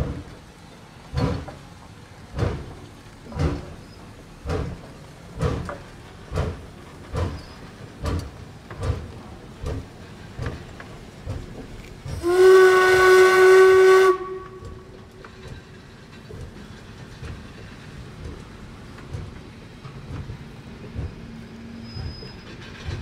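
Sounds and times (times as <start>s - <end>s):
steam locomotive chuffing: 0.0s - 23.0s.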